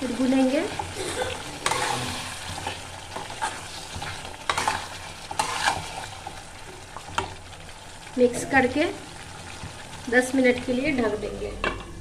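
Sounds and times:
chicken frying and sizzling: 0.0 - 12.0
metal spoon scraping pan: 1.6 - 6.0.

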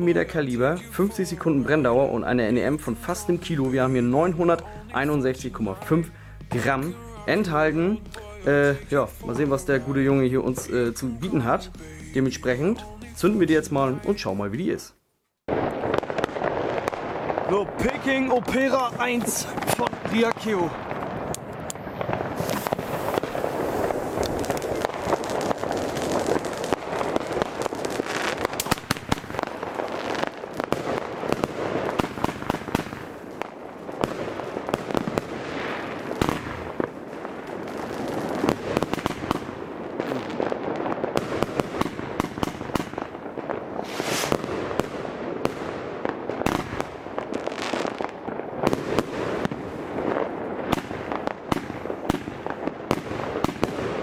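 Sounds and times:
firework barrage: 15.5 - 54.0.

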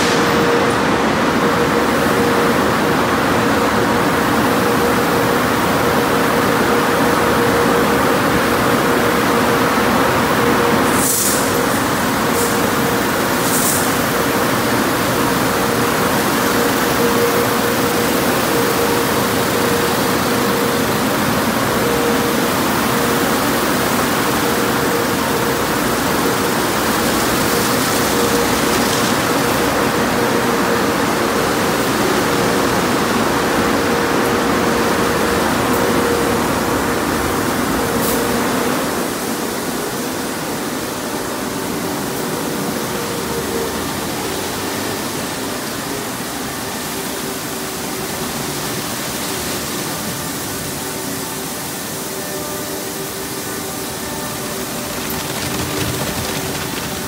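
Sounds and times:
steady machine hum: 0.0 - 57.0
spinning brushes scrubbing car: 54.7 - 57.0.

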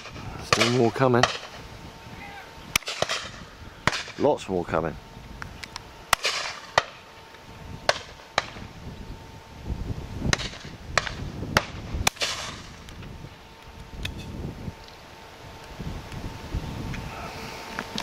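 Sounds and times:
shotgun shots with echo: 0.0 - 1.6, 2.8 - 4.3, 6.1 - 7.0, 10.3 - 12.8.

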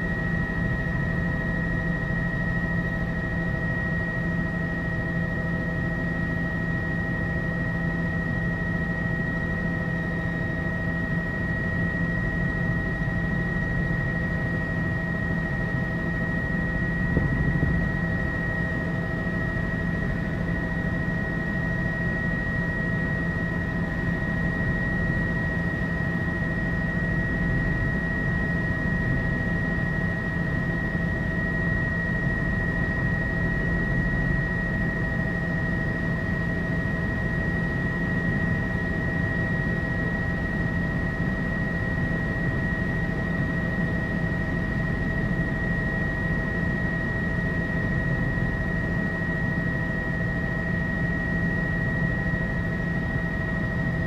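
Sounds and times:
helicopter engine and rotor drone: 0.0 - 54.0
high whine: 16.8 - 20.2.

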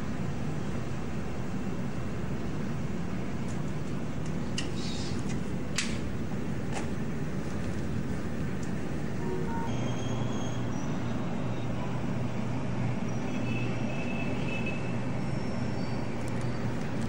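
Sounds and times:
distant city traffic rumble: 0.0 - 17.0
brief high-pitched squeals: 9.5 - 11.7.

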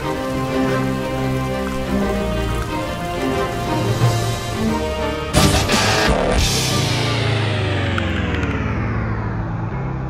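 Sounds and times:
distorted guitar chord ringing: 5.4 - 10.0.

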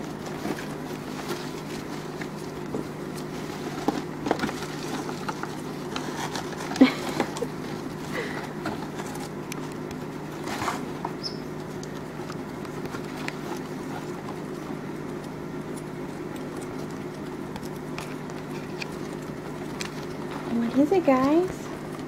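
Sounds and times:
rat claws scratching cardboard: 0.0 - 21.5
paper rustling: 0.1 - 9.4.

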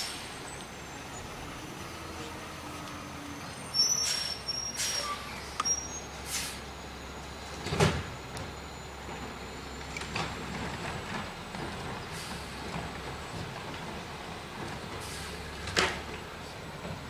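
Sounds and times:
garbage truck idling: 0.0 - 17.0
air-brake hisses with squeals: 3.0 - 6.7, 15.0 - 15.5.

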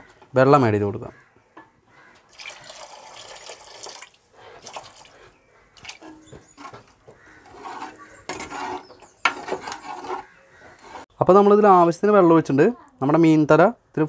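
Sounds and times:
water pouring into pot: 2.3 - 5.2
spoon stirring thick gravy: 5.6 - 11.0.

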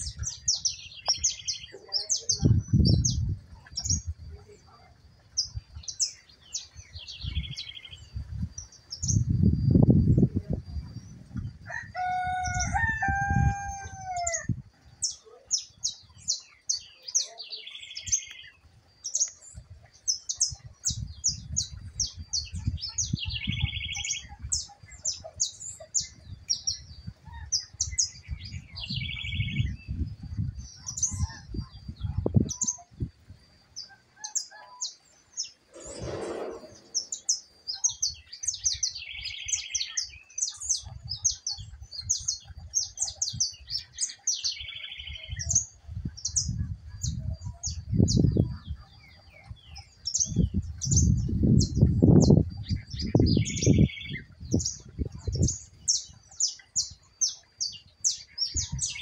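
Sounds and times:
wind rumble on microphone: 0.0 - 16.8, 18.0 - 33.9, 35.4 - 59.0
songbirds chirping: 0.0 - 59.0
brief rushing sound: 35.7 - 37.3
buzzy trilled bird phrase: 35.7 - 37.4.

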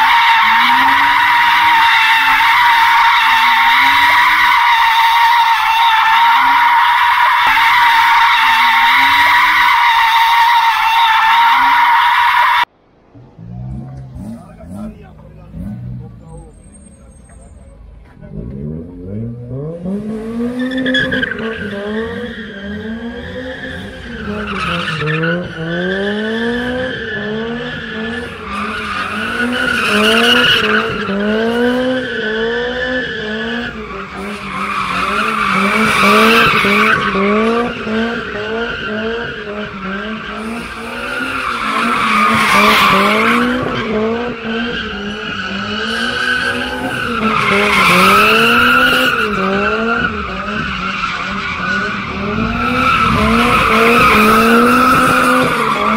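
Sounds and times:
car engine revving: 11.2 - 55.9.

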